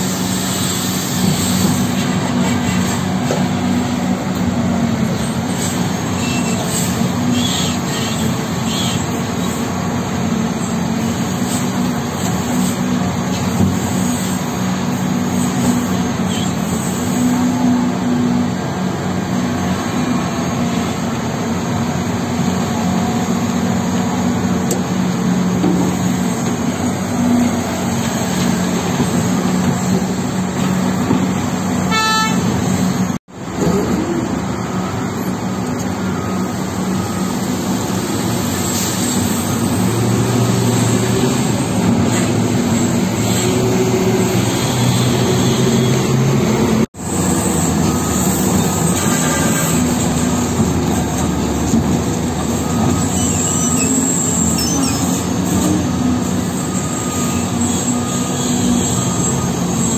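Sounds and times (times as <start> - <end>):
heavy diesel machinery humming: 0.0 - 59.9
horn toots: 31.8 - 32.7, 48.9 - 50.0.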